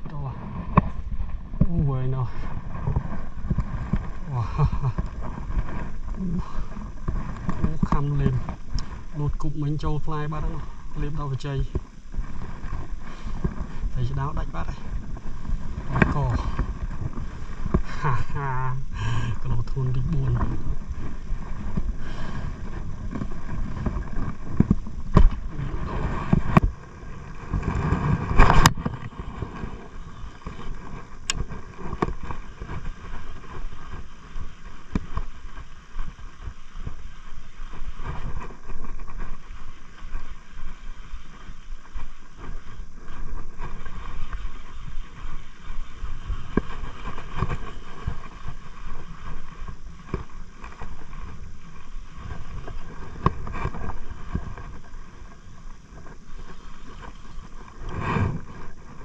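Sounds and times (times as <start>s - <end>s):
wind rumbling on microphone: 0.0s - 59.0s.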